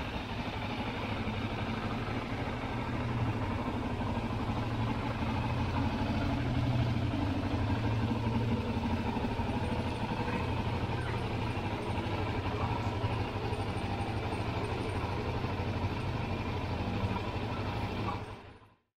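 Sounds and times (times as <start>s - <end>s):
motorcycle engine idling: 0.0s - 18.8s.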